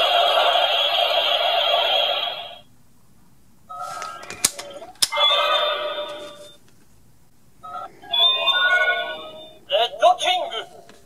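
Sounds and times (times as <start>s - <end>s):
toy electronic sound effect: 4.7s - 6.6s, 7.6s - 9.8s.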